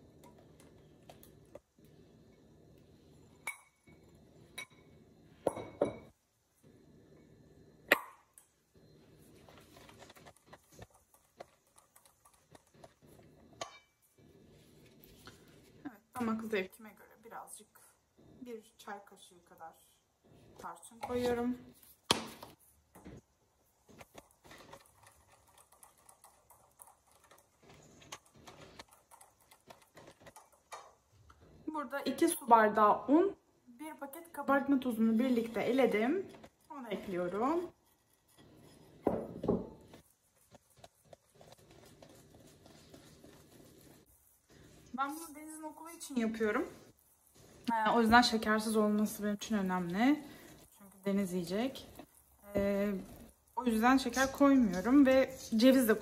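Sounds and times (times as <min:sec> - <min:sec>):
whisk scraping a steel bowl: 0:09.4 - 0:15.6, 0:24.1 - 0:30.9, 0:35.2 - 0:45.7.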